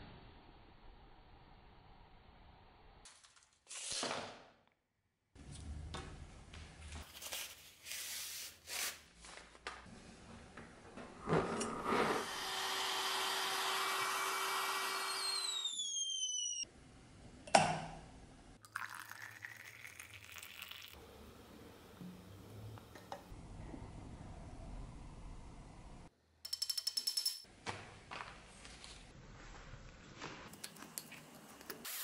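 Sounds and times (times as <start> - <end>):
small power tool whining: 11.7 - 16.6
water pouring into metal pot: 18.6 - 21.0.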